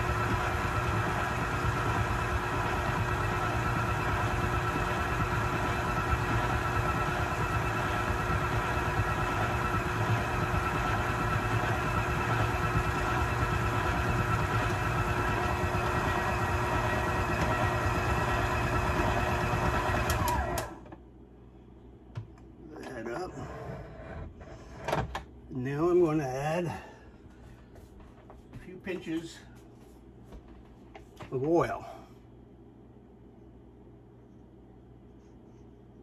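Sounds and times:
electric mixer motor running: 0:00.0 - 0:20.8.

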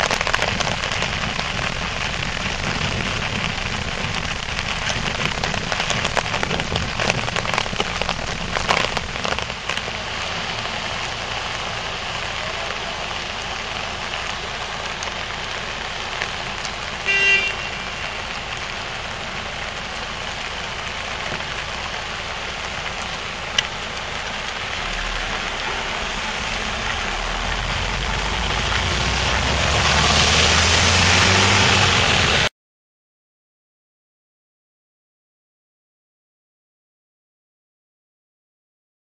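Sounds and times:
city traffic: 0:00.0 - 0:32.5
rain on plastic umbrella: 0:00.0 - 0:32.5
short horn toot: 0:17.0 - 0:18.2.

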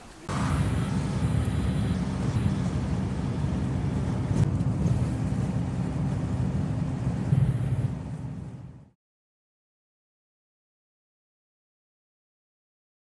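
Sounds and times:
motorhome engine and tyre drone: 0:00.3 - 0:09.0.

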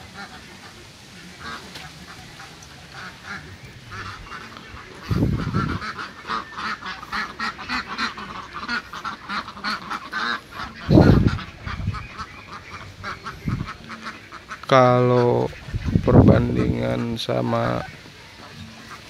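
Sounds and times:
ducks quacking: 0:00.0 - 0:19.0
low rumbles: 0:03.6 - 0:05.9.

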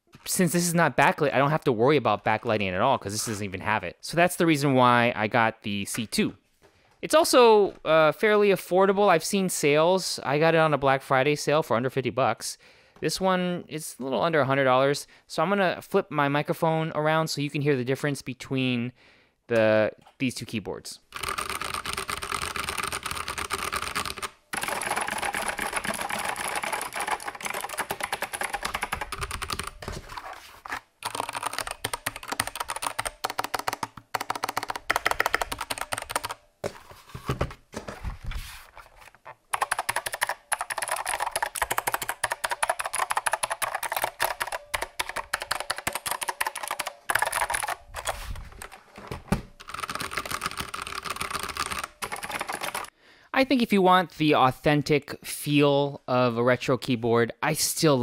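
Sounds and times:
typing on mechanical keyboard: 0:21.1 - 0:29.9, 0:31.0 - 0:36.4, 0:39.5 - 0:48.8, 0:49.6 - 0:52.9
clicky mechanical keyboard typing: 0:21.2 - 0:29.9, 0:31.0 - 0:36.4, 0:39.5 - 0:48.8, 0:49.6 - 0:52.9.

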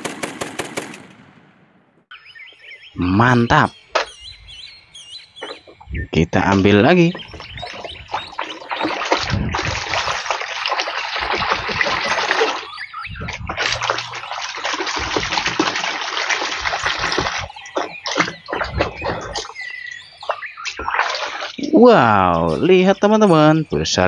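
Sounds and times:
running water splashing: 0:05.4 - 0:22.9.

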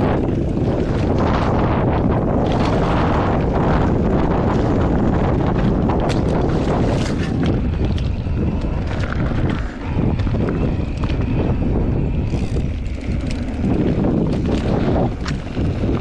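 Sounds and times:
bicycle knocks and rattles: 0:00.0 - 0:16.0
wind buffeting microphone: 0:00.0 - 0:16.0.

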